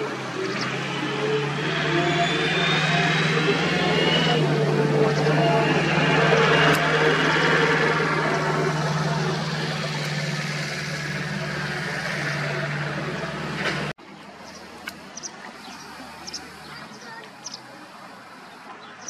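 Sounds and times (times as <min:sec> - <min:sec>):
engine running with low hum: 0:00.0 - 0:19.0.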